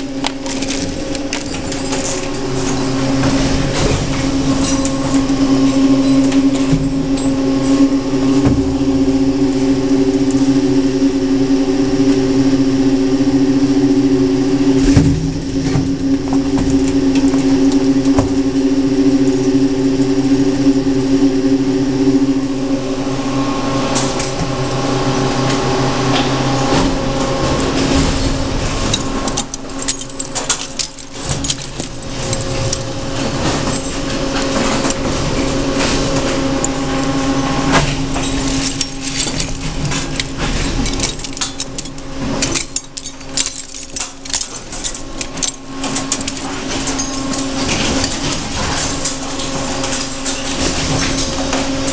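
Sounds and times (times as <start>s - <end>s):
metal pieces clattering into bin: 0.0s - 7.3s, 27.9s - 36.1s, 37.9s - 51.9s
industrial shredder humming: 0.0s - 51.9s.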